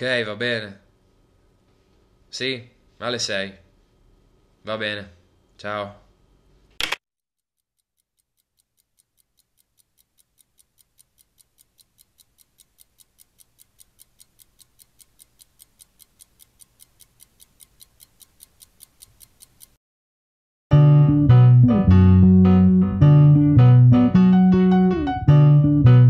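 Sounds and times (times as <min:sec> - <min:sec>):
faint even ticking: 0:07.6 - 0:19.8.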